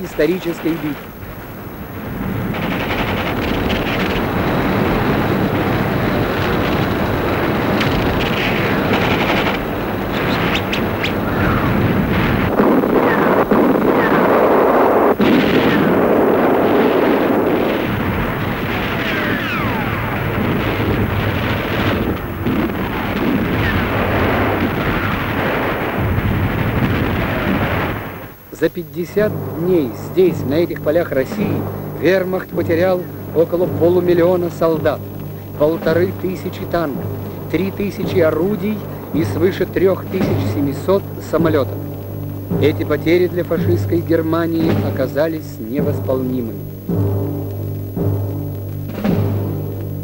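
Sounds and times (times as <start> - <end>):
gunfire and explosions: 0.0 - 50.0
sharp gunshot cracks: 15.2 - 16.1.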